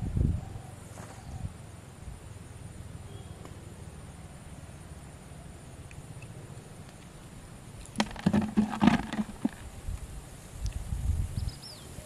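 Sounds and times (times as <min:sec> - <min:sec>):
sharp knocks: 0:08.0 - 0:09.6.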